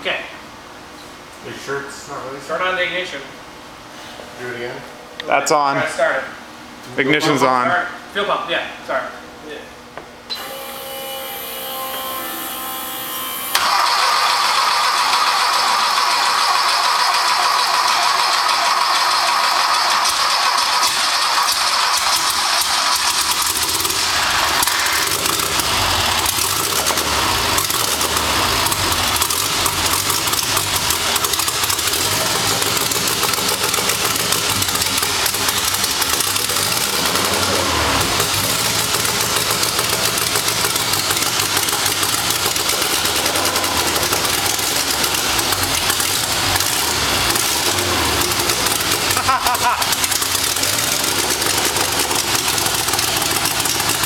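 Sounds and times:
engine cranking and starting: 0:13.5 - 0:54.0
engine running revving: 0:13.6 - 0:54.0.

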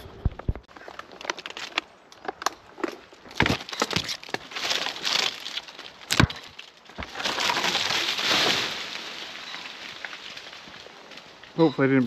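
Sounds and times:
branches cracking and snapping: 0:00.6 - 0:11.7
limb crashing through twigs and leaves: 0:03.3 - 0:11.6.

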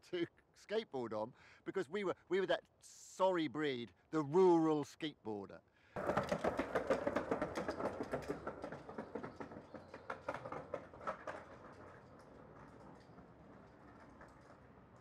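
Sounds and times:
skateboard rolling on concrete: 0:06.0 - 0:15.0.

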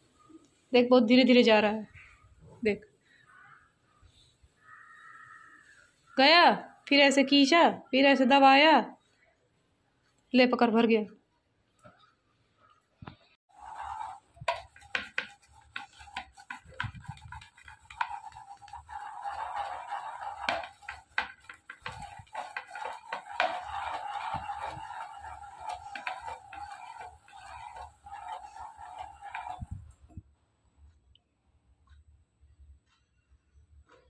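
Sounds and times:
dry grains rustling on metal plate: 0:13.5 - 0:30.1.

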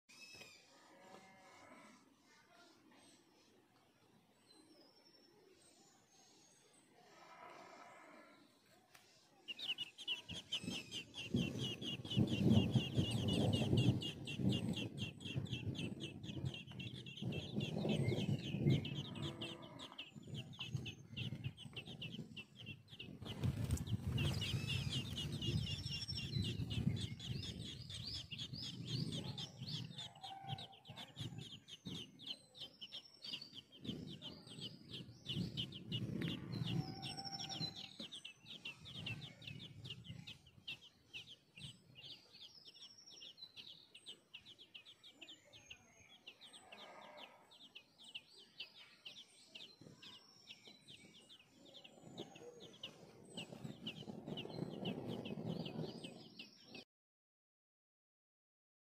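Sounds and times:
nestlings begging with high cheeps: 0:09.5 - 0:56.4.

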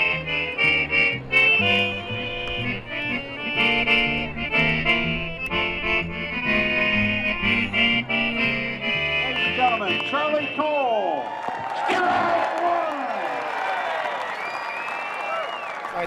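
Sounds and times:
background music with bass line: 0:00.0 - 0:10.6.

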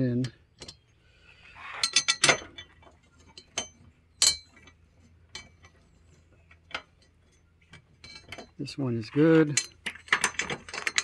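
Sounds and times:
allen key clinking on metal: 0:08.0 - 0:08.6, 0:09.5 - 0:11.0.

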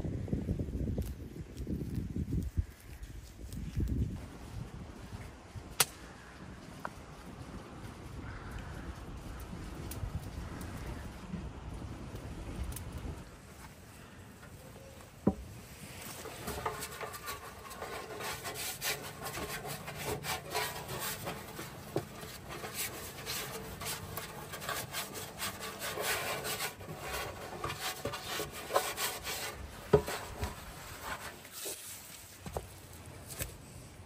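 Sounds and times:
hand rubbing oil on metal tin: 0:15.7 - 0:32.4.

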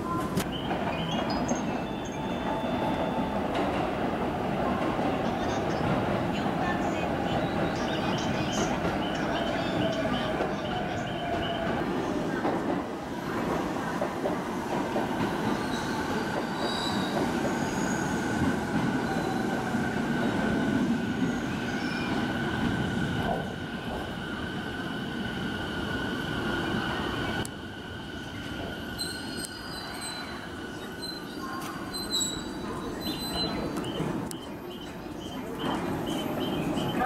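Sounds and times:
train wheels rumbling on rails: 0:00.0 - 0:37.0
high brake squeal: 0:29.0 - 0:30.4, 0:31.9 - 0:33.7.

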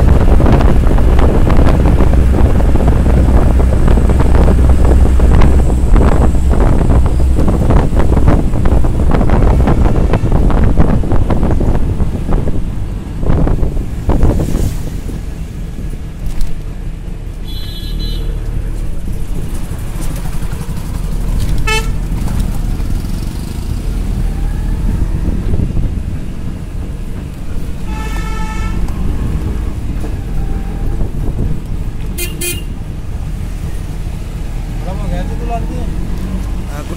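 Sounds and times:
engine and road rumble: 0:00.0 - 0:36.9
vehicle horn toots: 0:17.4 - 0:18.4, 0:21.6 - 0:22.0, 0:27.8 - 0:28.9, 0:32.1 - 0:32.8.

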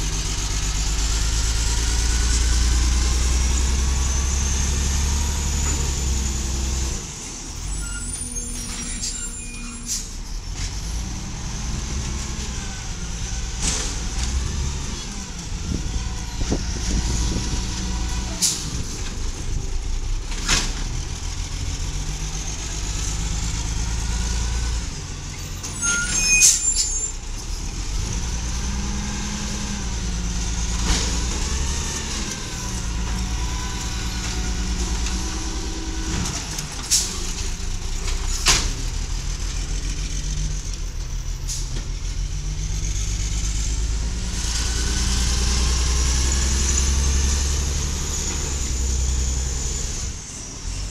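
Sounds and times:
garbage truck engine running: 0:00.0 - 0:25.7.

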